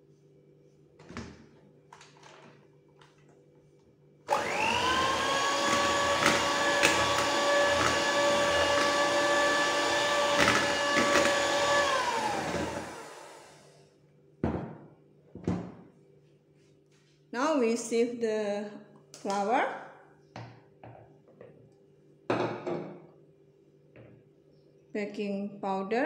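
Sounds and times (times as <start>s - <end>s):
electric hand mixer whining: 4.3s - 13.8s.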